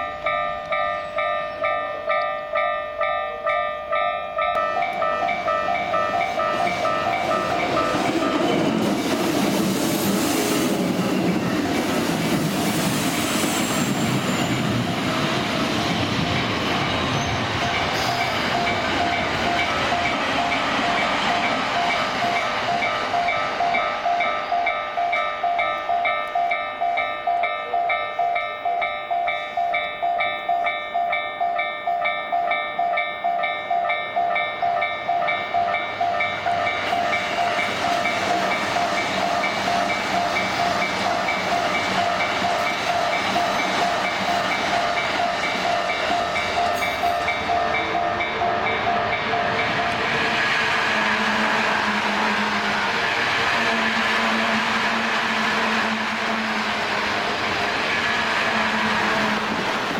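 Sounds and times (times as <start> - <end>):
level crossing bells dinging: 0.0 - 8.5
electric train passing: 0.0 - 59.9.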